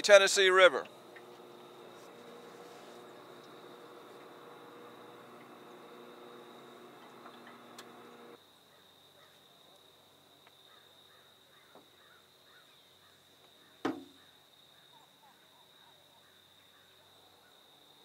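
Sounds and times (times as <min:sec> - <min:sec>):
faint steady hum: 0:00.3 - 0:08.4.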